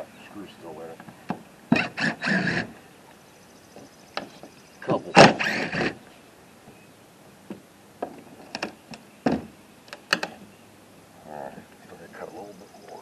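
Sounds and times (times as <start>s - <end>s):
impact driver running: 1.7s - 2.7s, 5.3s - 6.0s.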